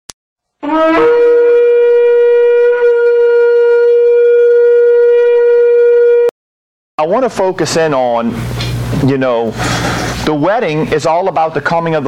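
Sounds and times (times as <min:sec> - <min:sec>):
shofar blast: 0:00.5 - 0:06.3.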